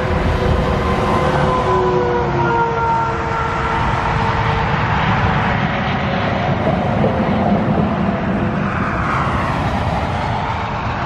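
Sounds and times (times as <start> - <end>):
highway traffic rushing past: 0.0 - 11.0.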